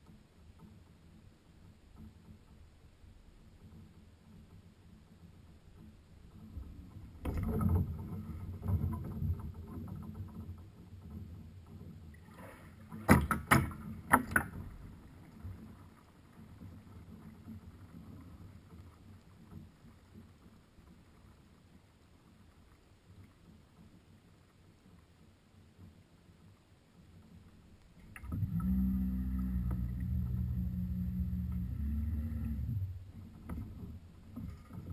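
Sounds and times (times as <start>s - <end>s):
underwater rumbling swish: 5.5s - 13.1s.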